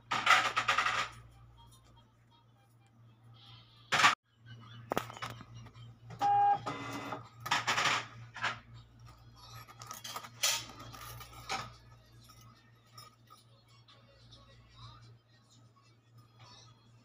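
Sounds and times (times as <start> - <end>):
bangles clinking: 9.1 - 13.8.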